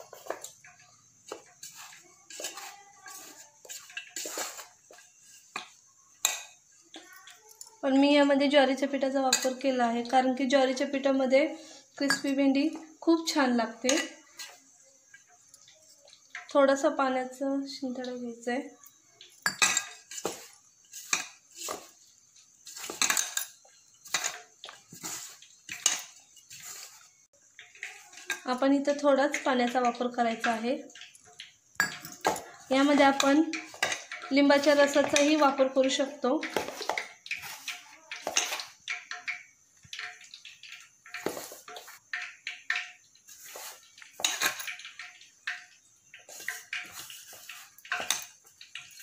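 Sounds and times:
knocks and clinks on metal bowl: 0:12.0 - 0:12.9, 0:18.8 - 0:22.0, 0:22.7 - 0:26.6, 0:27.5 - 0:49.0.

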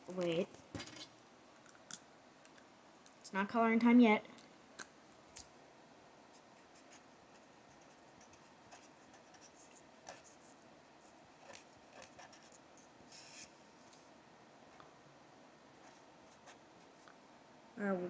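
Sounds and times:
marker scratching on paper: 0:06.4 - 0:13.6.

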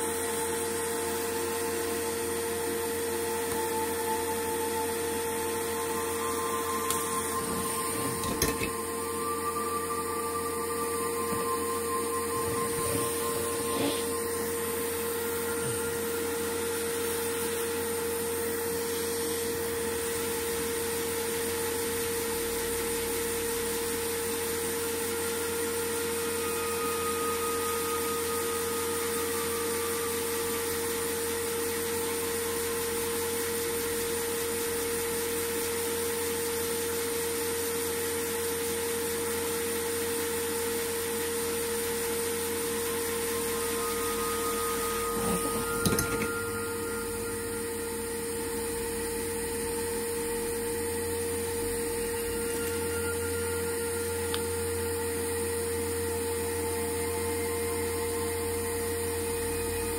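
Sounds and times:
electric motor humming: 0:00.0 - 0:22.3, 0:40.4 - 0:59.9.

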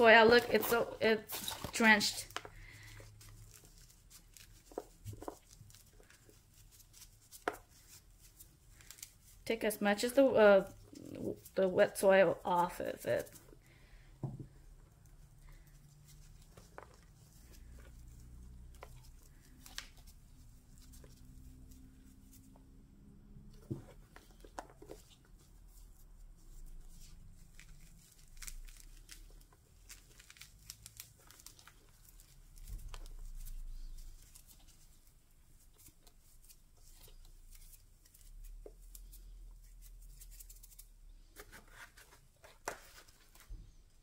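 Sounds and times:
plastic gloves rustling in soil: 0:00.0 - 0:13.6, 0:25.0 - 0:41.0.

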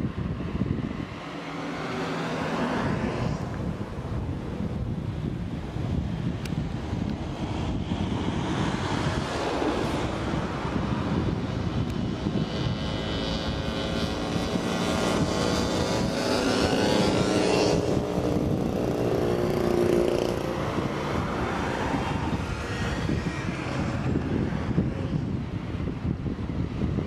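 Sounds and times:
cars driving past: 0:00.1 - 0:04.8, 0:06.6 - 0:25.4
motorcycles buzzing past: 0:01.1 - 0:03.8, 0:07.7 - 0:25.3.

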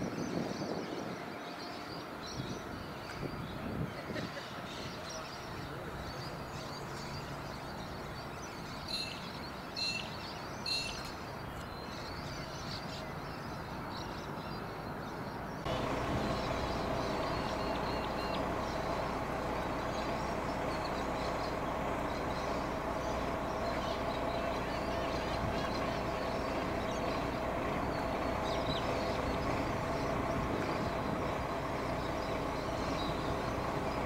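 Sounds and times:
birds chirping: 0:00.0 - 0:34.0
traffic hum: 0:00.0 - 0:34.0
short bird calls: 0:15.6 - 0:34.0.

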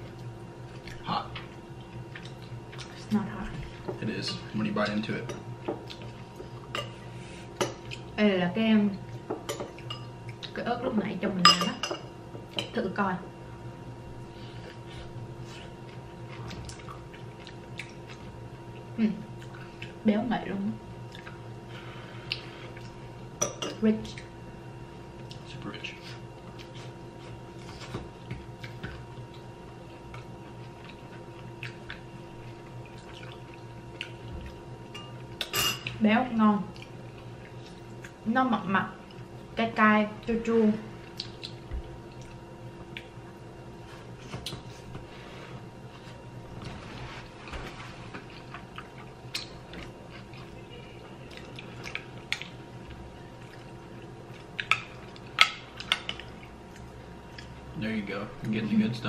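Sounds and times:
people chewing food: 0:00.0 - 0:08.2, 0:09.1 - 0:10.6, 0:14.1 - 0:20.0, 0:20.9 - 0:23.4, 0:25.1 - 0:36.0, 0:36.6 - 0:38.2, 0:40.9 - 0:57.8
steady low hum: 0:00.0 - 0:59.0
wet squishy eating sounds: 0:00.2 - 0:03.8, 0:14.5 - 0:20.0, 0:21.0 - 0:21.6, 0:25.2 - 0:36.0, 0:40.9 - 0:45.0, 0:48.1 - 0:57.8.

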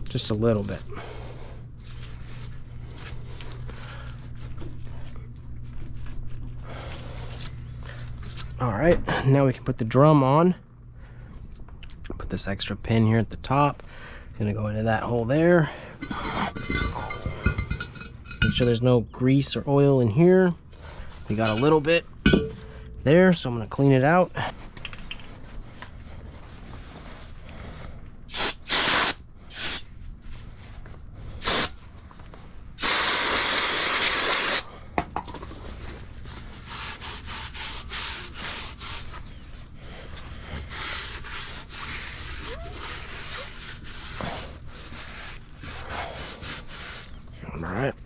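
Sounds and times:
aerosol spray blasts: 0:28.3 - 0:29.8, 0:32.8 - 0:34.6
paper towel scrubbing metal drum: 0:35.7 - 0:47.2.

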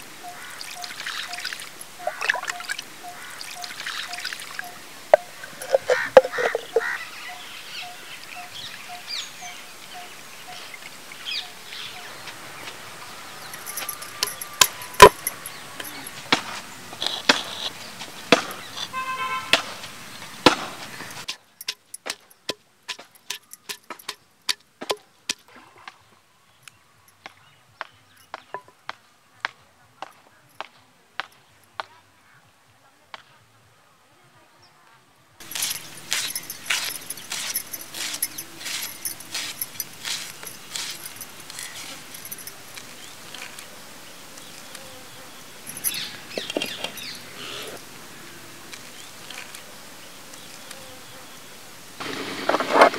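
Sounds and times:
outdoor background noise: 0:00.0 - 0:52.9
pestle pounding in stone mortar: 0:20.5 - 0:25.4, 0:35.4 - 0:42.4.

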